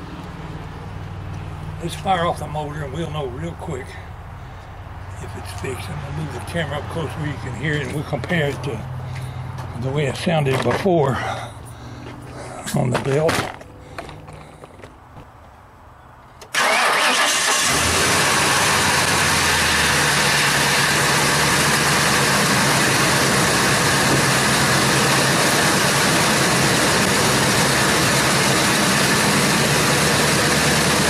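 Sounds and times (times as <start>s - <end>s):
car engine starting and idling: 16.4s - 31.0s.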